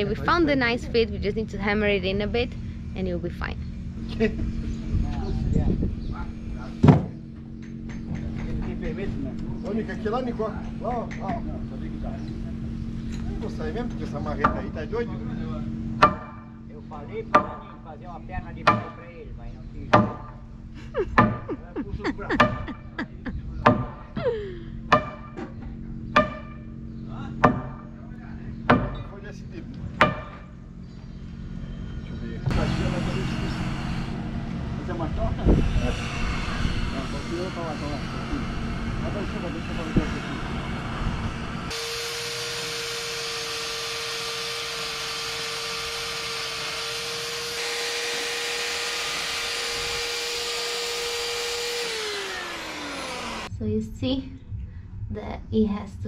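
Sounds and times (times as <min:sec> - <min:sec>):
sledgehammer knocking wooden beam: 0:06.8 - 0:07.2, 0:16.0 - 0:16.6, 0:17.3 - 0:17.8, 0:18.6 - 0:19.0, 0:19.9 - 0:20.4, 0:21.2 - 0:21.5, 0:23.6 - 0:24.1, 0:24.9 - 0:26.7, 0:27.4 - 0:28.0, 0:28.7 - 0:29.1, 0:30.0 - 0:30.5
electric chainsaw whining on wood: 0:32.5 - 0:53.5.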